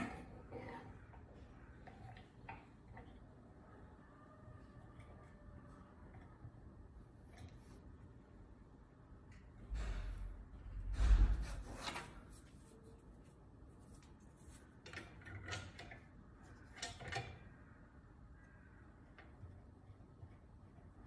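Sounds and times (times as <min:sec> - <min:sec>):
metal scraping and rubbing: 0:09.7 - 0:17.4.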